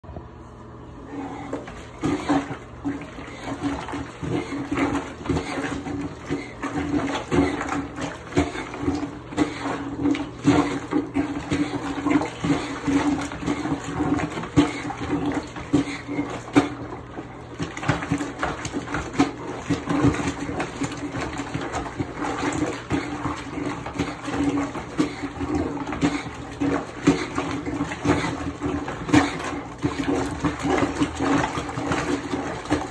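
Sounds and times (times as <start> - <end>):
washing plunger sloshing water: 1.0 - 32.9.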